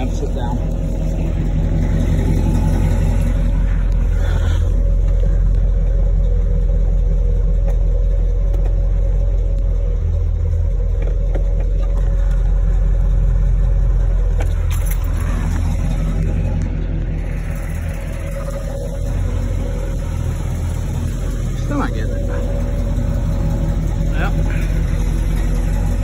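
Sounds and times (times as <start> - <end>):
car engine rumbling: 0.0 - 26.0.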